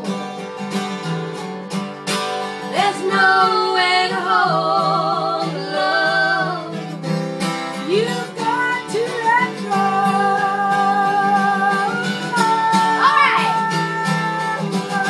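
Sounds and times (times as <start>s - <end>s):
acoustic guitar strummed: 0.0s - 15.0s
woman singing with vibrato: 2.7s - 7.0s, 7.8s - 15.0s
second woman's voice: 12.8s - 13.8s.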